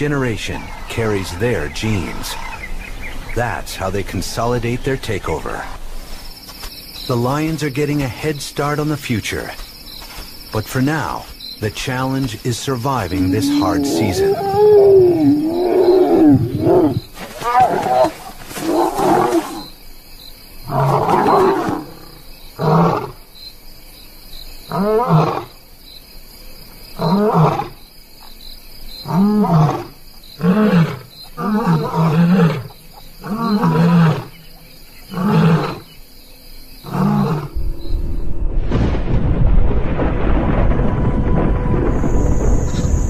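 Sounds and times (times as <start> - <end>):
lion roaring: 13.1 - 19.7, 20.7 - 23.2, 29.1 - 34.3, 35.0 - 35.9, 36.8 - 37.8.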